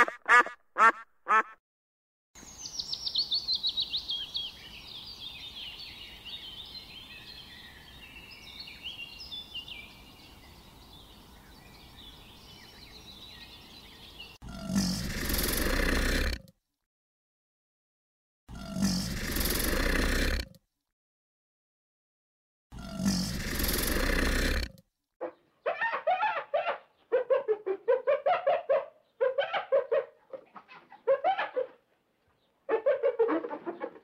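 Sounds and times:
duck quacking: 0:00.0 - 0:01.6
small birds chirping: 0:02.4 - 0:16.4, 0:18.6 - 0:20.5, 0:22.8 - 0:25.8
loud rough animal call: 0:14.4 - 0:16.4, 0:18.5 - 0:20.6, 0:22.7 - 0:25.4.

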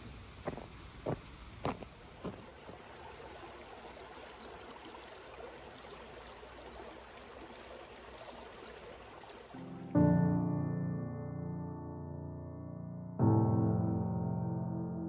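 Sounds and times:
water trickling over rocks: 0:00.0 - 0:10.0
footstep-like knock: 0:00.5 - 0:02.4.

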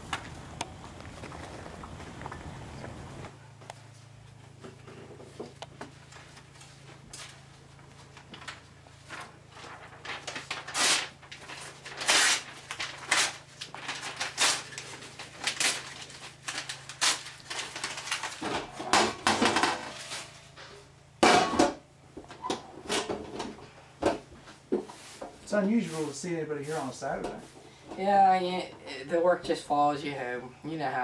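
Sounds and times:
paper tearing: 0:09.5 - 0:18.4
metal trash can lid clattering: 0:21.2 - 0:21.8.

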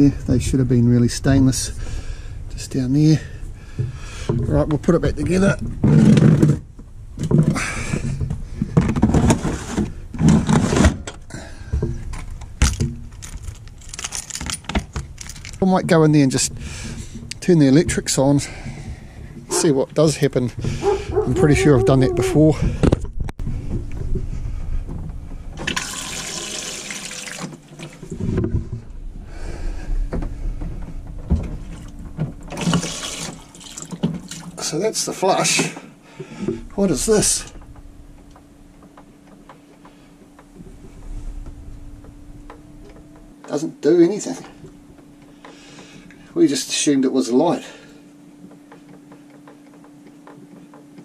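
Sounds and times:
keys jangling: 0:12.7 - 0:15.6
toilet flushing water rushing: 0:25.6 - 0:28.0, 0:32.5 - 0:34.5.

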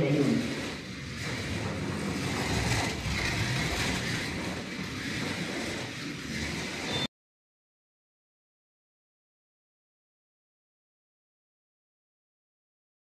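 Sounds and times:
slot car motor whirring: 0:00.0 - 0:07.1.

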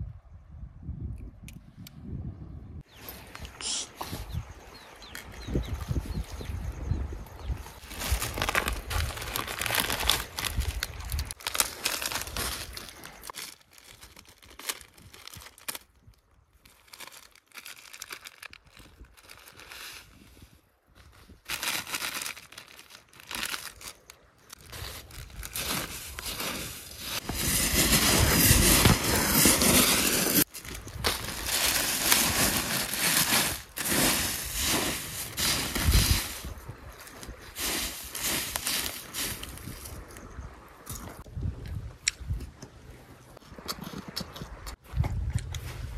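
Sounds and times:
plastic packet crinkling: 0:07.8 - 0:19.9, 0:21.4 - 0:36.0.

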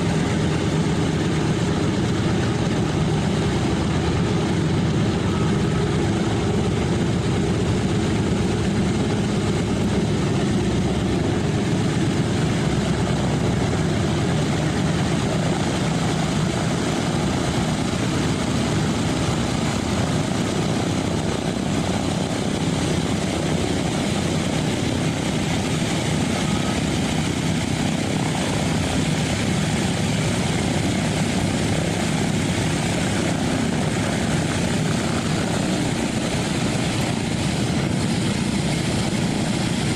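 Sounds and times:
radial aircraft engines running: 0:00.0 - 0:39.9.

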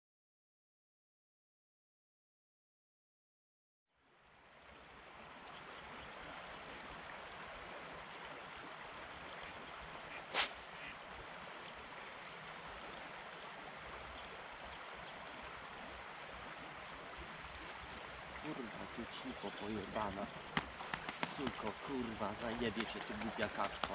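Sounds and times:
river water rushing: 0:05.6 - 0:23.9.

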